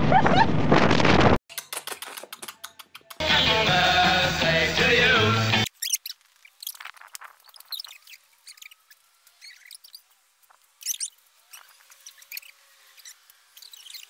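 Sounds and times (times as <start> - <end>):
small birds chirping: 5.6 - 14.0.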